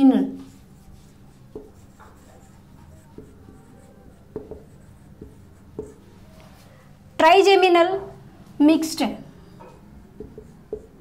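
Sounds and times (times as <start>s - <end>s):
marker squeaking on whiteboard: 0.4s - 6.7s, 9.6s - 11.0s.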